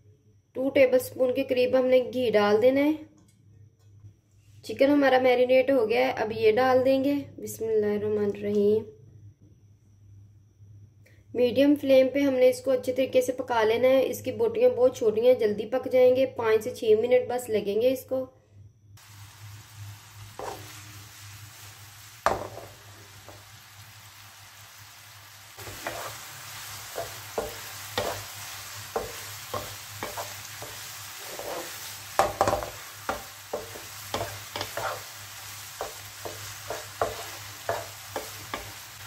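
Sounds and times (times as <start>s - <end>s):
chicken sizzling in a pan: 19.0s - 39.0s
wooden spatula scraping a pan: 20.4s - 20.9s, 25.6s - 39.0s.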